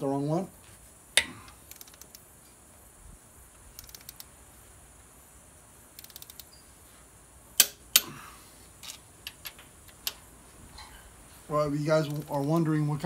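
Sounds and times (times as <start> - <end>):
ratchet wrench clicking: 1.2 - 2.2, 3.7 - 4.3, 5.9 - 6.5, 12.0 - 12.7
loud sharp clicks: 3.7 - 4.3, 5.9 - 6.5, 7.6 - 8.1.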